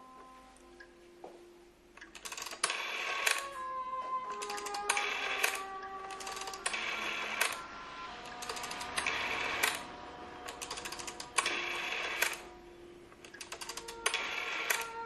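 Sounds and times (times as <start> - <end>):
telephone dial clacks: 13.3 - 14.9.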